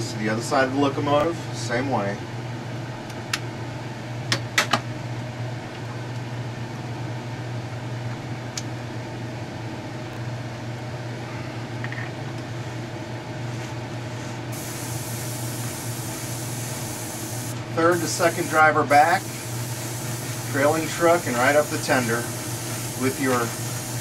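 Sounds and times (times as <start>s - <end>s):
exhaust fan humming: 0.0s - 24.0s
airbrush hissing: 14.5s - 24.0s.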